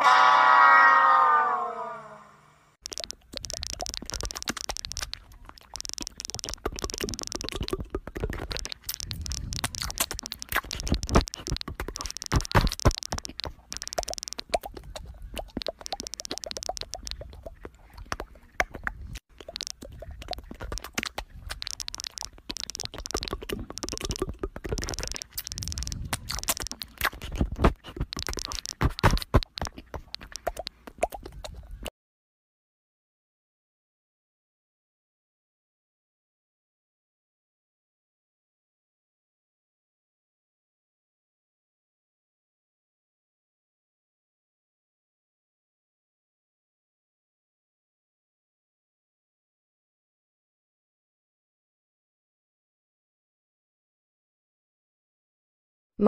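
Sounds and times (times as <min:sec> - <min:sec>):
smartphone keyboard clicking: 0:02.8 - 0:31.6.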